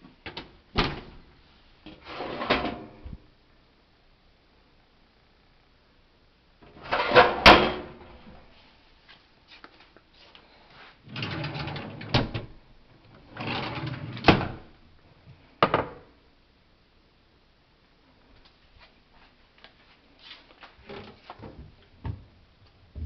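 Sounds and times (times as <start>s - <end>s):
wooden drawers sliding: 11.1s - 12.5s.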